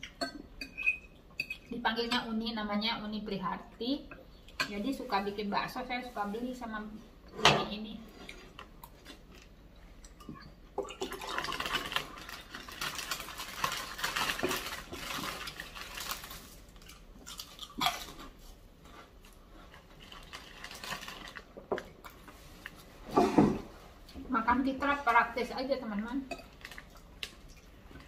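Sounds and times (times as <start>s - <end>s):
spoon scraping and clinking in bowl: 0.6s - 1.7s.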